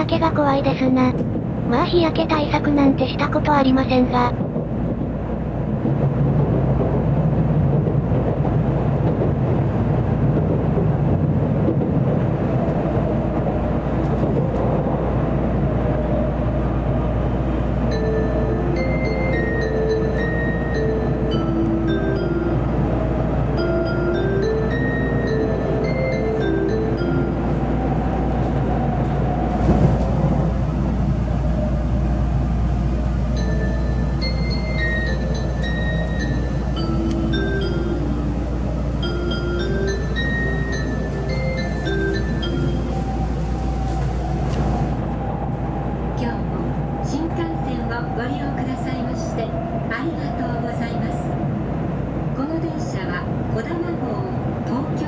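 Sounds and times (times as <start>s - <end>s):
train low rumble: 0.0s - 55.0s.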